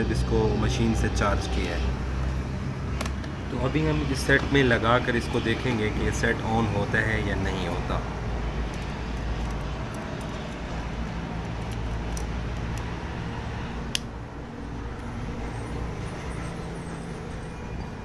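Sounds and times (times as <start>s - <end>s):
sharp click: 13.9s - 14.1s.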